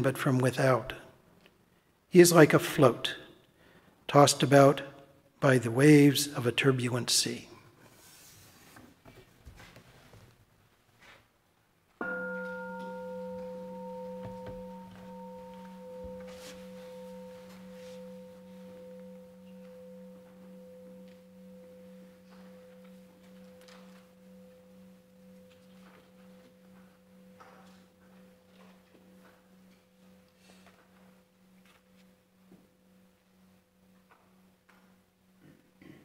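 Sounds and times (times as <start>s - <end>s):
singing bowl ringing: 12.0s - 35.4s.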